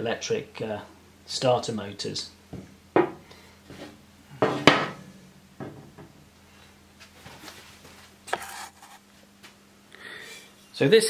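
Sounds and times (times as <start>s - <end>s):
metal knocks on workbench: 2.6s - 3.2s, 4.4s - 5.0s, 5.6s - 6.2s.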